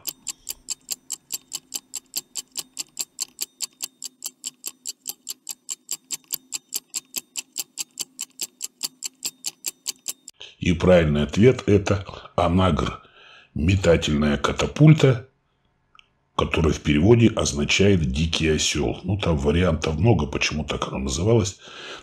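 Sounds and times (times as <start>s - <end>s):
stopwatch ticking: 0.0s - 10.4s.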